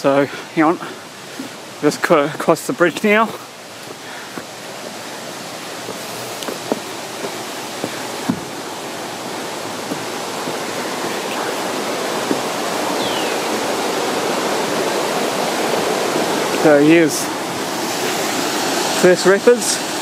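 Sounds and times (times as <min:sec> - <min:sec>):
stream rapids rushing: 0:00.0 - 0:20.0
footsteps on wooden steps: 0:03.3 - 0:13.0.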